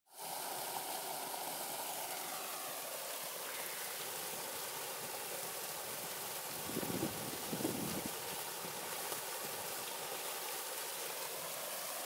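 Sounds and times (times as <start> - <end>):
waterfall splashing into pool: 0.1 - 12.0.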